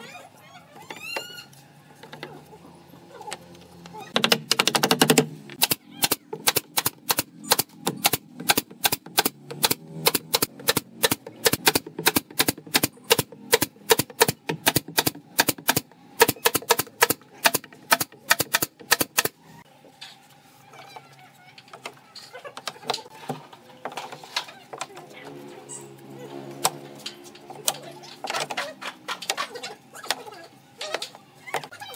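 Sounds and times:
nail gun firing: 4.2 - 19.3.

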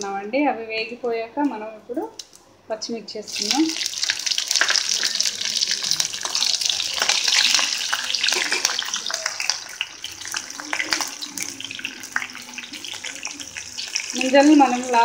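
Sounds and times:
chillies sizzling in hot oil: 3.2 - 15.0.

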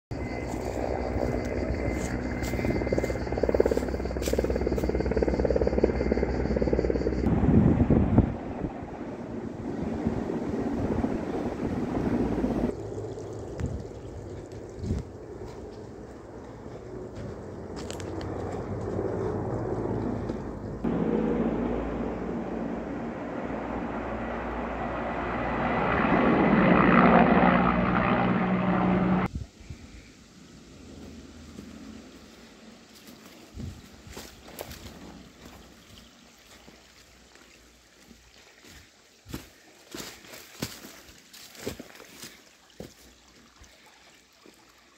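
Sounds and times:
pump engine running: 0.1 - 7.3
fire pump engine drone: 0.1 - 29.3
rough rumbling: 0.2 - 29.3.

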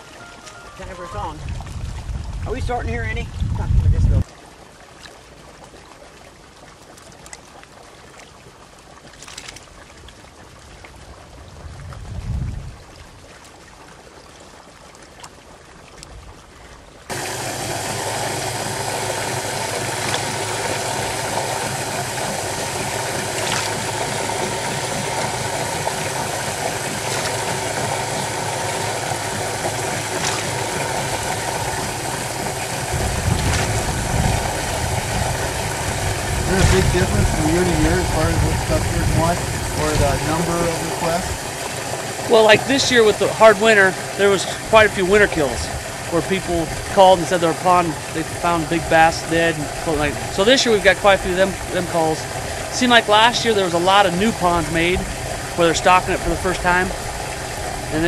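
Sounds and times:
water sloshing: 0.0 - 3.6, 4.2 - 58.0
water bubbling and splashing: 0.0 - 58.0
engine idling: 17.1 - 58.0.

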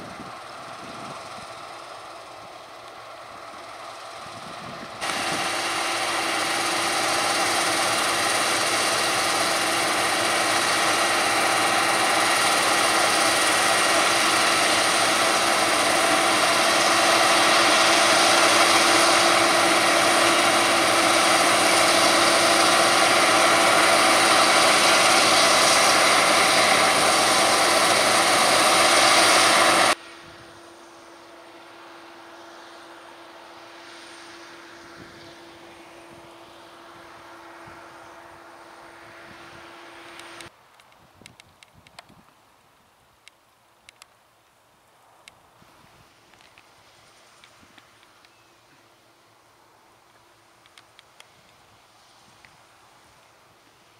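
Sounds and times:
machinery whine: 0.0 - 40.5
combine harvester running: 0.0 - 42.0, 45.5 - 53.9.

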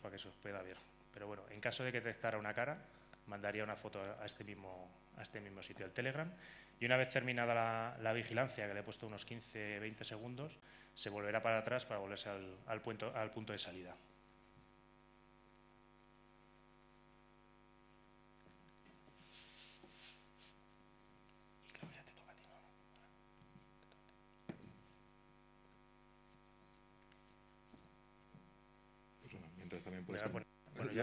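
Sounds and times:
electrical mains hum: 0.0 - 31.0
faint knocks and rustles: 24.4 - 25.0.

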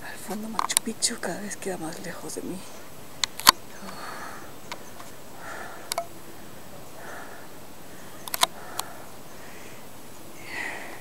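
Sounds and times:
person breathing softly: 3.7 - 11.0
video camera handling clicks: 8.2 - 8.9.

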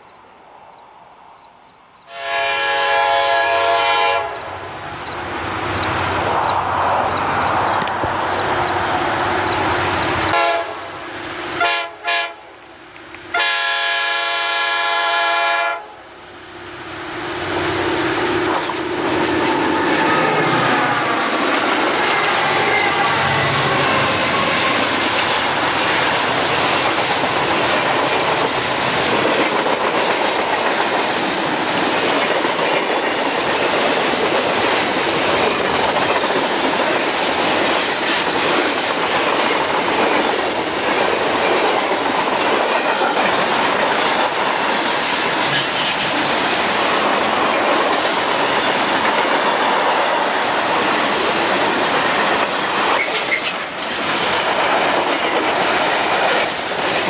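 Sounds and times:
train horn blasts: 2.1 - 4.6, 10.3 - 12.5, 13.3 - 16.0
train wheels clacking on rail joints: 18.4 - 57.0.

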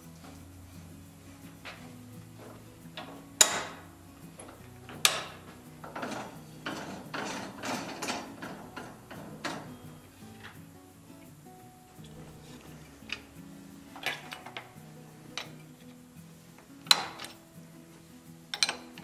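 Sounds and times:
ratchet clicks: 1.6 - 10.7, 12.0 - 15.9, 16.6 - 17.5, 18.5 - 19.0
sharp metal clanks: 2.4 - 10.6, 16.9 - 17.4.

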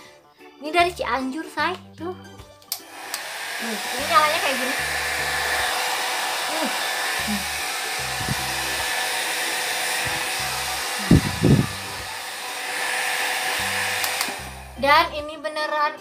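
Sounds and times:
hair dryer blowing: 2.7 - 15.1.

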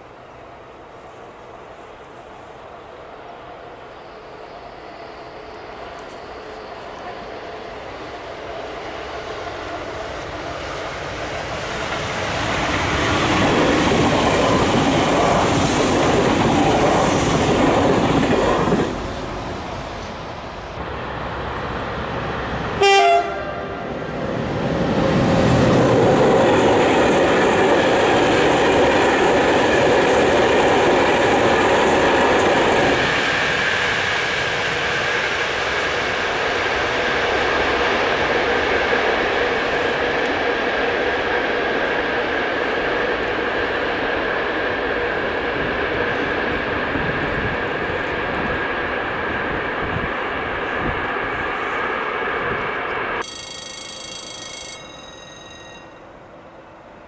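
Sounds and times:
passenger train rumble: 0.0 - 57.0
freight train wheels rolling: 3.4 - 56.2
train horn blast: 22.8 - 23.9.

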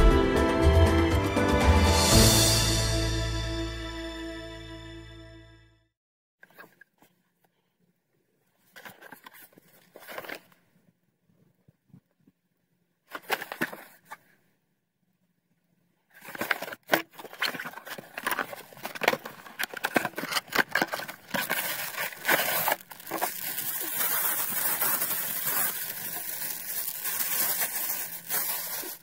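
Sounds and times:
packaging rustling and crinkling: 8.6 - 10.6, 16.1 - 29.0.

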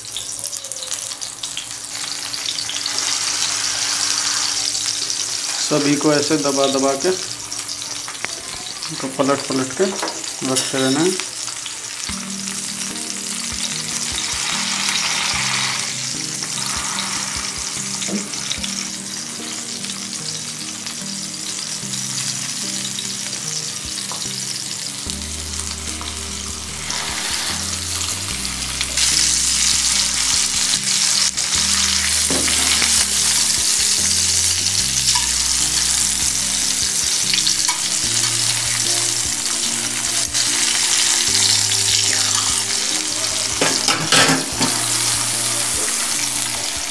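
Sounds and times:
vegetables sizzling in oil: 0.0 - 46.9
metal spatula scraping a pan: 13.8 - 18.6, 25.5 - 33.8, 43.6 - 46.9.

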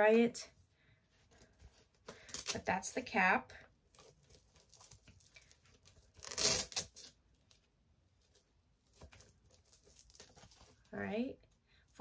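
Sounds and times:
packaging rustling: 3.8 - 11.0
packaging ripping: 3.9 - 7.2, 8.9 - 10.8.

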